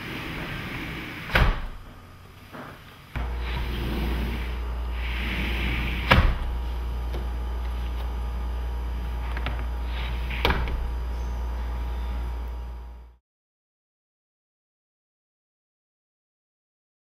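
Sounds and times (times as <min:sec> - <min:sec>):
steady low hum: 0:00.0 - 0:13.2.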